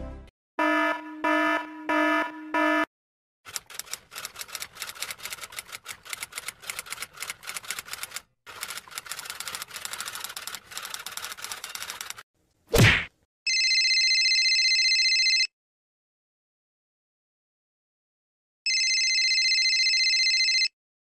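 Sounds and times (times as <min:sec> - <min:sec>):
electronic alarm beeps: 0:00.6 - 0:02.9
typewriter keys clattering: 0:03.5 - 0:12.2.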